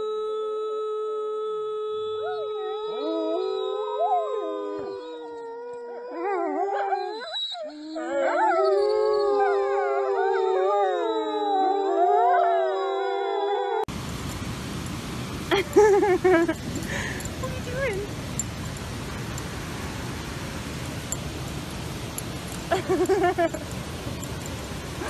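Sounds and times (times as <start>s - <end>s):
woman howling: 1.8s - 7.2s, 8.0s - 13.9s
wolves howling in chorus: 2.2s - 13.9s.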